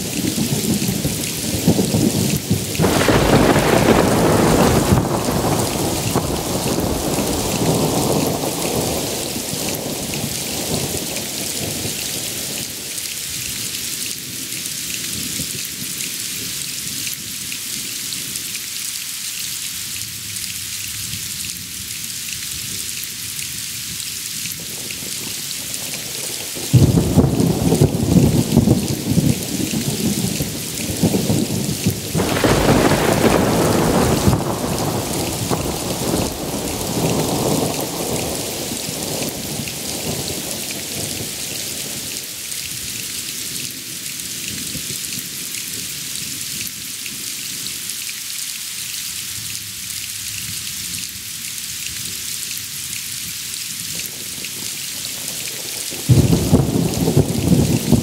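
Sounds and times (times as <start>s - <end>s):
heavy rain hissing: 0.0s - 14.8s, 19.5s - 58.0s
thunder: 0.2s - 10.8s, 26.7s - 40.4s, 56.1s - 58.0s.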